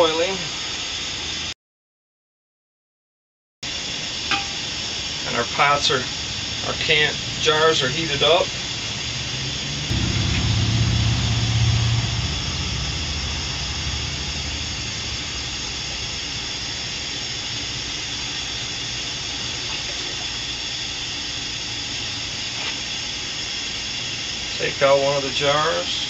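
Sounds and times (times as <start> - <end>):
low rumble: 8.8 - 19.6.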